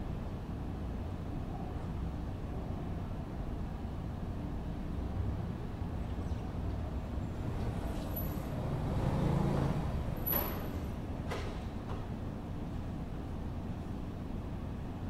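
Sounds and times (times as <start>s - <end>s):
low traffic rumble: 0.0s - 15.0s
car passing: 7.2s - 11.0s.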